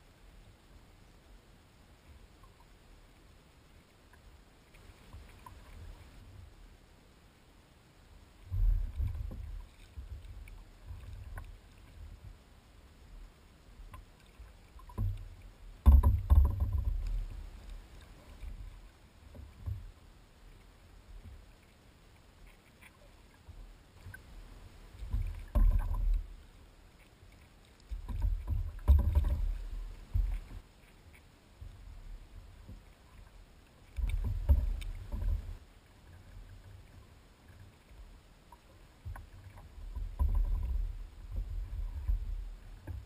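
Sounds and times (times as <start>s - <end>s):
water slapping against kayak hull: 14.2s - 17.4s, 27.6s - 30.6s, 33.8s - 35.6s.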